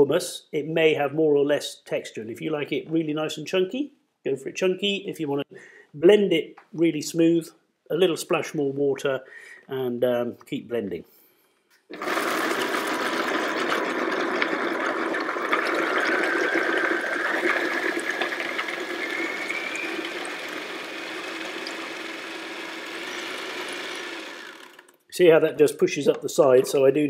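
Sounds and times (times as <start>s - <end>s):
food processor blending: 11.9s - 25.0s.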